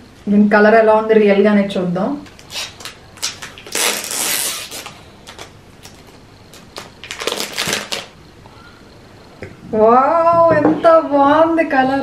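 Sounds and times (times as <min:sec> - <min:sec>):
plastic wrap crinkling: 0:02.3 - 0:08.2.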